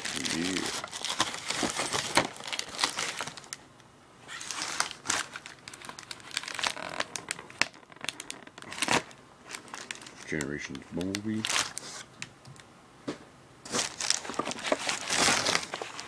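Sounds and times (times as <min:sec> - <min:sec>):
hands rummaging through box: 0:00.0 - 0:03.4, 0:13.7 - 0:16.0
bubble wrap crinkling: 0:00.0 - 0:03.6, 0:04.2 - 0:12.2, 0:13.7 - 0:16.0.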